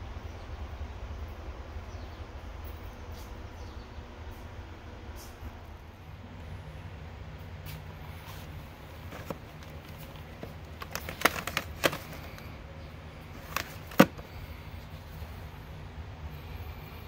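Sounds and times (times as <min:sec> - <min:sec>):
plastic cases clacking: 0:08.4 - 0:12.6, 0:13.2 - 0:14.5.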